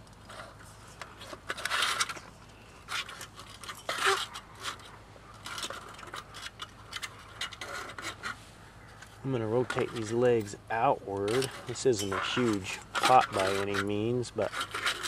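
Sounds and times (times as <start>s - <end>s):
metal camp stove clattering: 9.6s - 15.0s.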